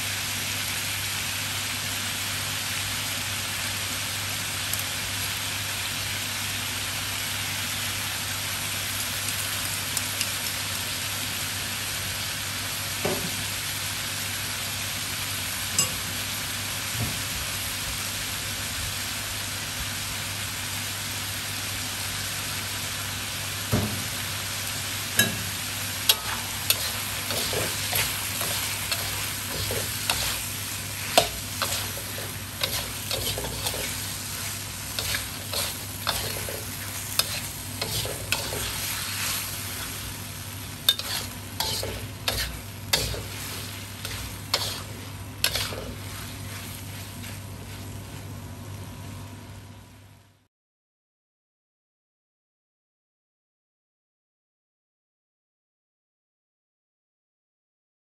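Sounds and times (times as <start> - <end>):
food sizzling in a wok: 0.0 - 50.5
metal spatula scraping a wok: 26.1 - 40.2, 40.9 - 48.2.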